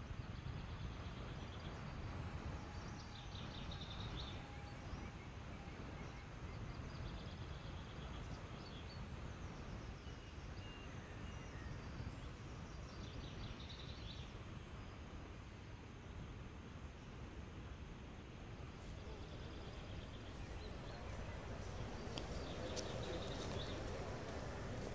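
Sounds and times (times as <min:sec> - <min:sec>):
wind and road noise: 0:15.9 - 0:24.9
small birds chirping: 0:18.6 - 0:24.9.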